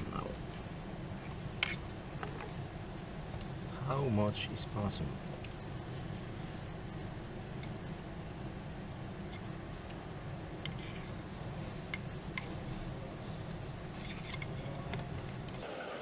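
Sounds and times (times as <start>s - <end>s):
steady low hum: 0.0s - 15.6s.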